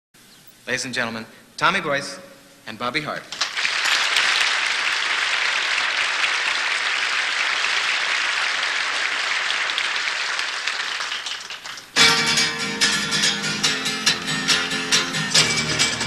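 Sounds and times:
audience applauding: 3.3 - 12.0
strummed guitar: 12.0 - 16.0.

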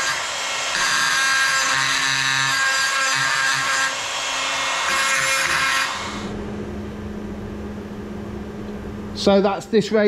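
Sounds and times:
power grinder on metal: 0.0 - 6.3.

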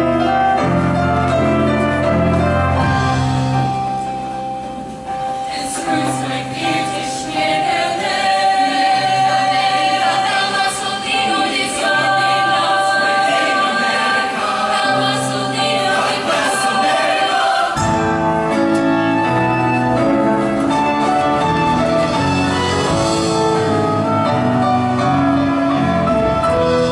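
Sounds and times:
choir singing with instruments: 5.3 - 26.9
instrumental music with bass line: 17.3 - 26.9.

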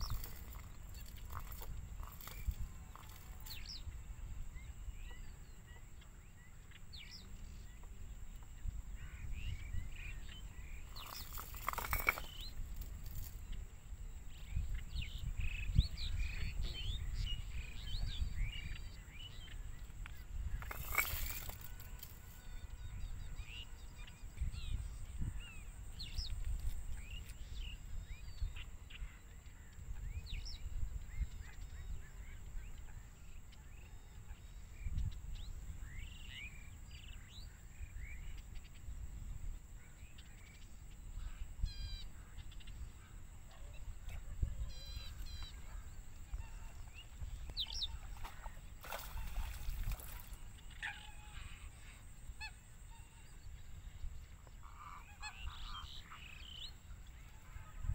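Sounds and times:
small birds chirping: 0.0 - 57.9.

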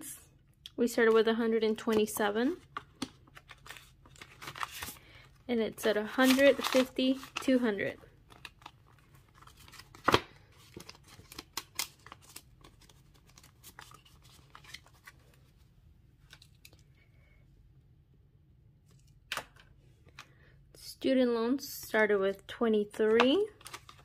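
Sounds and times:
banknotes rustling and snapping: 1.8 - 5.3, 6.1 - 7.6, 8.2 - 15.4, 23.1 - 24.0.

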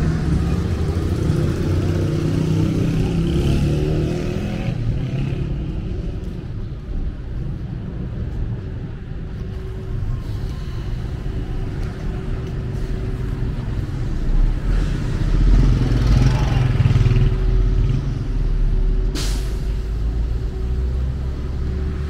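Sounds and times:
traffic engine rumble: 0.0 - 22.0
short sharp hiss: 19.2 - 19.7.

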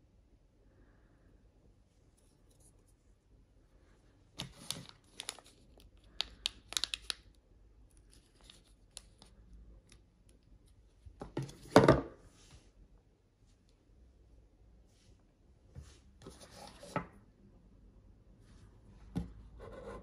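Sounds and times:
plastic bag crinkling: 4.4 - 7.2.

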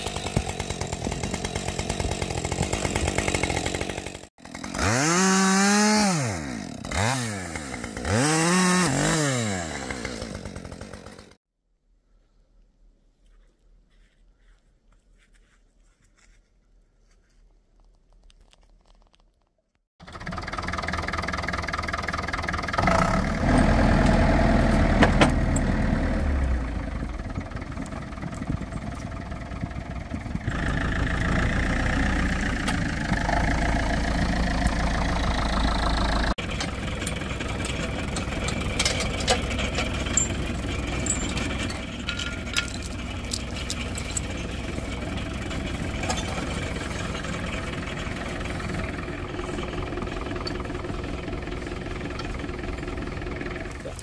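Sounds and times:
tractor engine running: 0.0 - 11.4, 20.0 - 54.0
tow chain clinking: 36.5 - 48.8.

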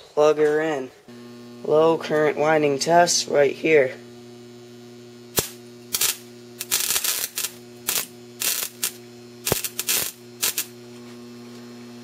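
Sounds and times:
transformer mains hum: 0.0 - 12.0
sparks snapping and crackling: 5.3 - 10.8.

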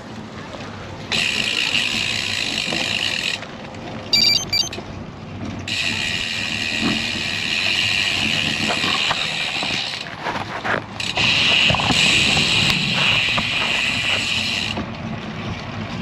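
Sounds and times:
wind: 0.0 - 16.0
high two-part chirp: 4.2 - 4.8.

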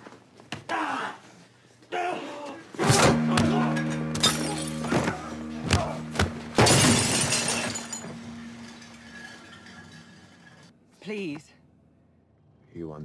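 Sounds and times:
low droning music: 2.8 - 10.4
glass breaking: 2.9 - 10.7.

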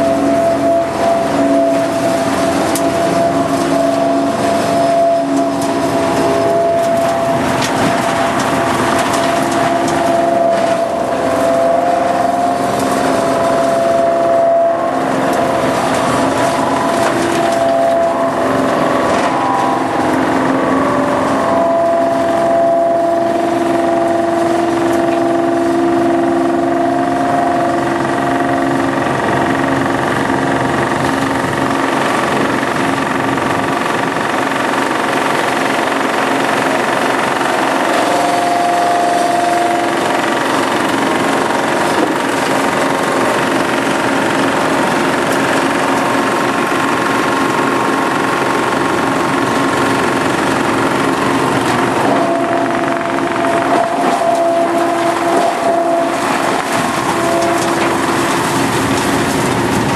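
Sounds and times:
wood chipper running: 0.0 - 59.9.

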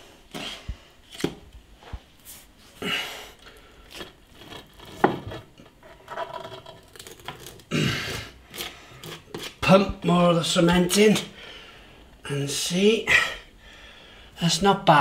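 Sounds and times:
knocks and scrapes on cast iron: 3.9 - 7.5.

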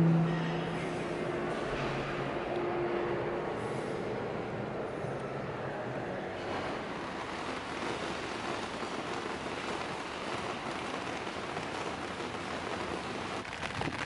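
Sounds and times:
rain on wet street: 6.1 - 14.0.

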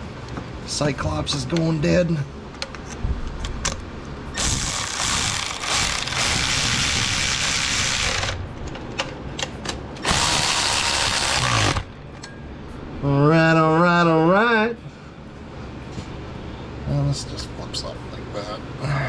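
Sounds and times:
ratchet wrench clicking: 4.4 - 8.4, 10.0 - 11.9.

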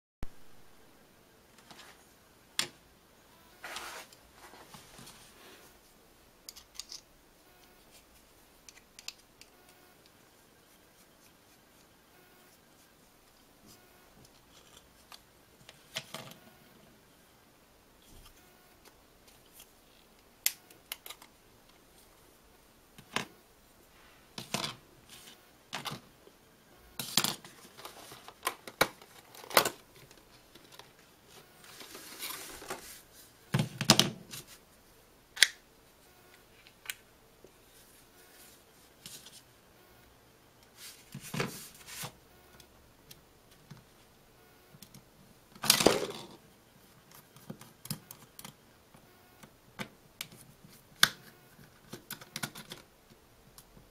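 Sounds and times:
plastic parts clicking and snapping: 8.6 - 10.2, 35.4 - 35.6, 51.0 - 52.9.

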